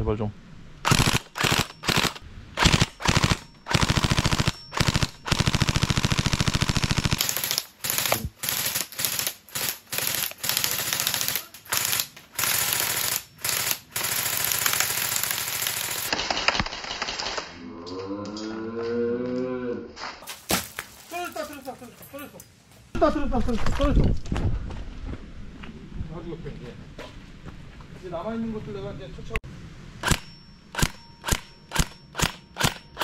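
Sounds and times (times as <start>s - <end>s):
toy rifle firing rapid shots: 0.9s - 16.5s, 30.0s - 33.0s.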